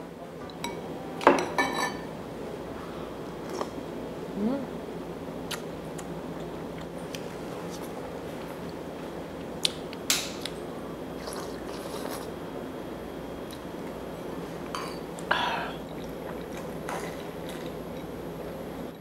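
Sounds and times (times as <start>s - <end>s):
low room hum: 0.0s - 19.0s
metal spoon clinking on ceramic bowls: 0.6s - 2.0s.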